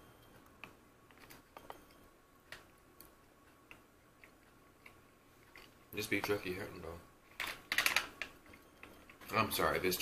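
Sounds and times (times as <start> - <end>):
person chewing: 2.4 - 5.9.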